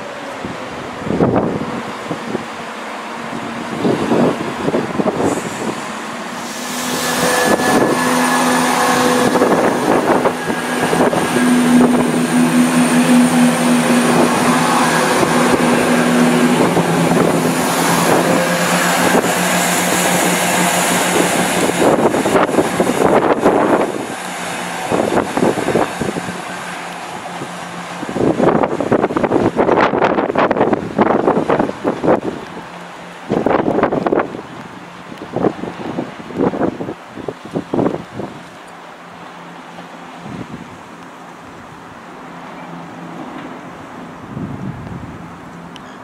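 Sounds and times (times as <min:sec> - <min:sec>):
train diesel engines droning: 0:00.0 - 0:46.0.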